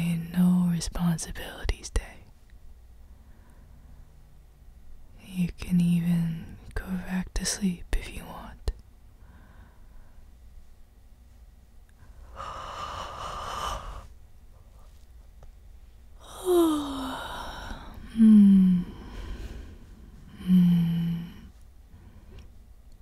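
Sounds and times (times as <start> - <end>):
man humming contentedly: 16.2 - 19.1, 20.3 - 21.5.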